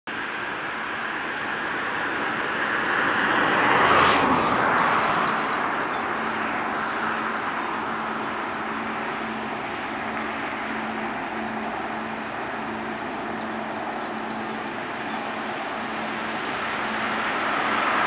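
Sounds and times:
vehicle passing by: 0:00.2 - 0:18.0
small bird twittering: 0:05.0 - 0:07.6, 0:12.9 - 0:16.7.

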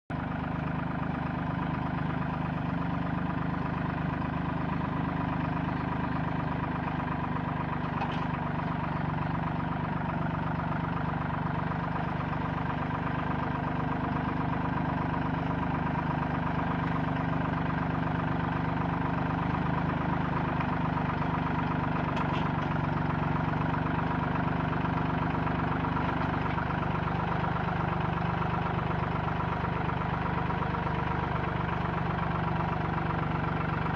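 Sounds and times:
tractor diesel engine running: 0:00.1 - 0:33.9.

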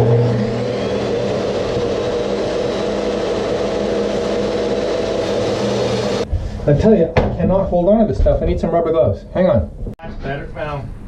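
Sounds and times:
table saw cutting plastic: 0:00.0 - 0:06.3.

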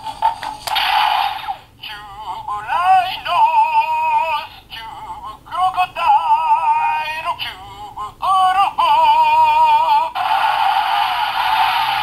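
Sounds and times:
synthetic sung melody: 0:01.8 - 0:10.2
toy speaker noise rush: 0:10.2 - 0:12.0.

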